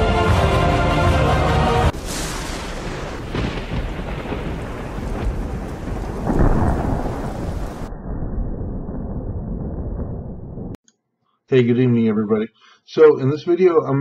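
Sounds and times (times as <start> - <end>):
intro music: 0.0 - 1.9
rain: 0.0 - 7.9
thunder rumbling: 1.8 - 10.8.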